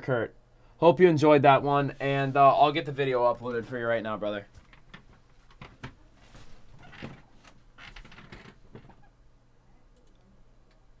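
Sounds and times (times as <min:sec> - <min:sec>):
clicks knocks and rustles at desk: 0:04.5 - 0:09.0.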